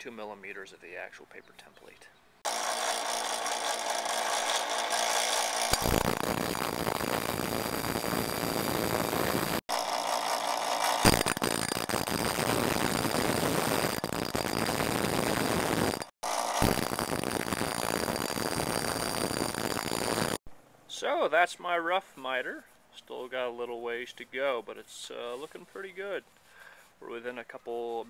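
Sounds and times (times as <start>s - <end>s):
bench grinder grinding metal: 2.5s - 20.4s.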